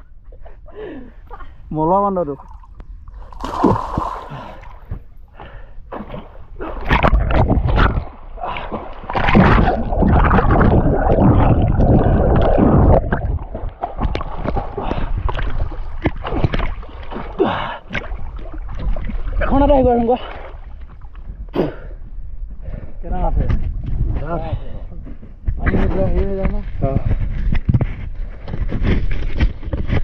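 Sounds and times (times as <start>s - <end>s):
water splashing: 2.1s - 21.3s
muffled underwater rushing: 2.4s - 21.4s.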